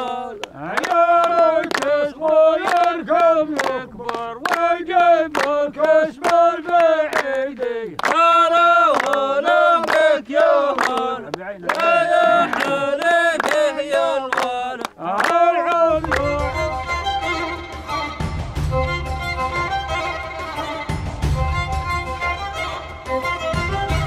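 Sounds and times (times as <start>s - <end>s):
man singing slowly: 0.0s - 16.8s.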